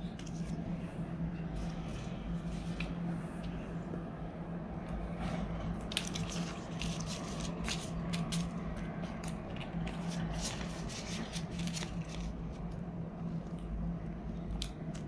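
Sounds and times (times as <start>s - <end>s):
banknotes rustling: 5.9s - 12.8s.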